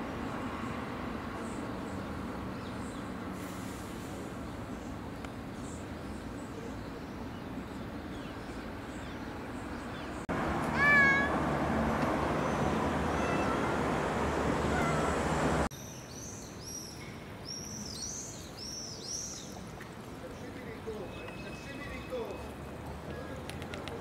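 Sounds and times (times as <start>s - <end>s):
cat meowing: 10.7s - 11.3s, 13.1s - 13.8s, 14.7s - 15.2s.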